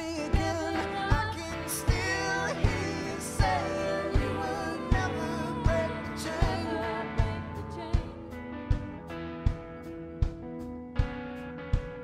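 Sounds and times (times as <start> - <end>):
pop song with singer: 0.0 - 9.0
steady drum beat: 0.0 - 12.0.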